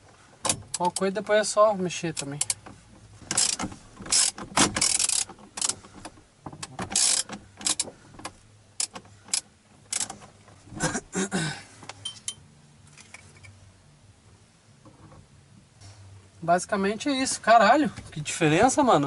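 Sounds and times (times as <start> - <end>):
tool clunk and rattle: 0.0 - 1.0, 2.4 - 11.1, 14.8 - 16.1
ratchet wrench clicking: 3.3 - 5.8, 6.6 - 7.9, 8.8 - 10.2.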